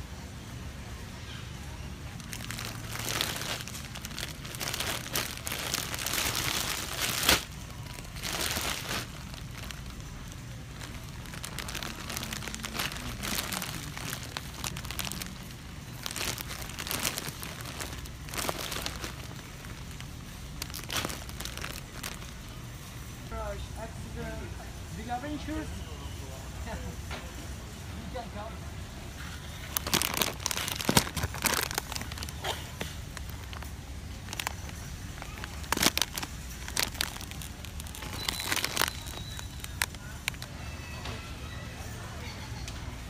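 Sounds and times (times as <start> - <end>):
plastic bag crinkling: 2.1 - 22.6, 29.5 - 40.5.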